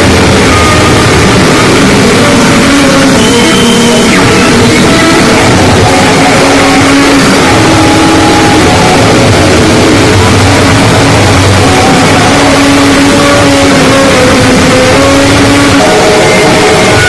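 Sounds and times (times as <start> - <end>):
harsh distorted noise music: 0.0 - 17.0.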